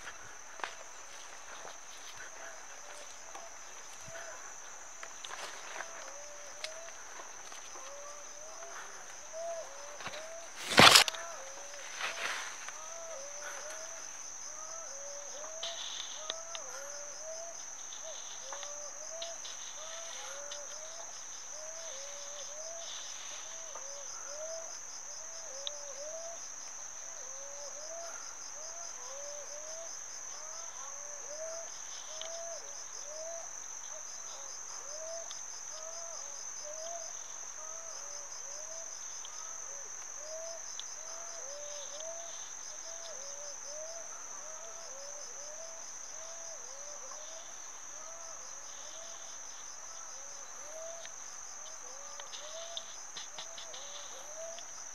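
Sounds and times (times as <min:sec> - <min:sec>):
crickets trilling: 0:00.0 - 0:54.9.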